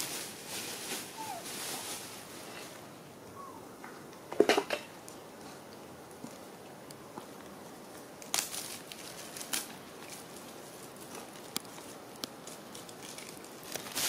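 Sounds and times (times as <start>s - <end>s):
monkeys rustling leaves: 0.0s - 3.7s, 8.2s - 14.0s.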